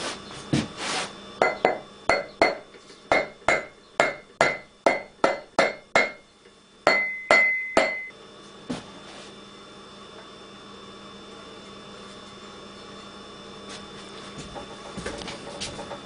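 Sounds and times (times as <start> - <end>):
mallet tapping metal: 1.4 - 6.2, 6.9 - 8.1.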